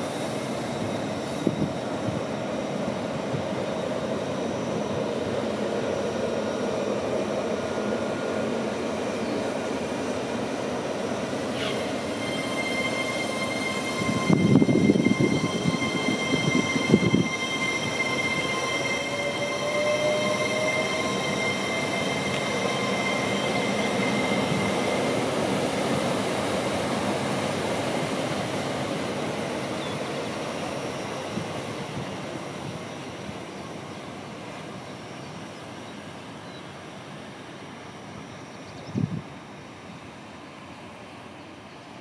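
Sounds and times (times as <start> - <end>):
train wheels rumbling on rails: 0.0 - 36.1
high whistling tones: 11.6 - 25.4
rising whine: 11.7 - 25.9.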